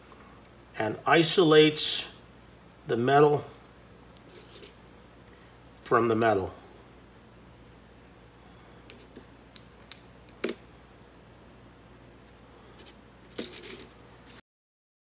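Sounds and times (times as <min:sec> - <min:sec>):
metal parts clinking on table: 0:09.6 - 0:10.6.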